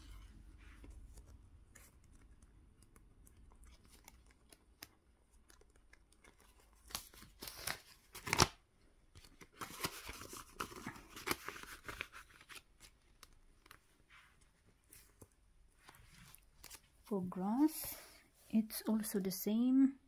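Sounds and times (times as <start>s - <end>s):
paper envelopes crinkling: 3.5s - 17.1s.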